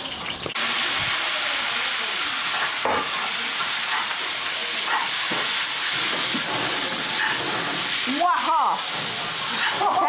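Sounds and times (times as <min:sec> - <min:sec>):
greens sizzling in wok: 0:00.0 - 0:10.0
metal spatula scraping pan: 0:02.4 - 0:10.0.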